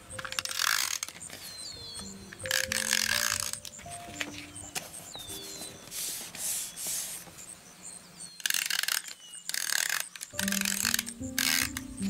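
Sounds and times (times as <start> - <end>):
soft piano music: 0.0 - 6.6, 10.3 - 12.0
paper rustling and rubbing: 2.8 - 7.5.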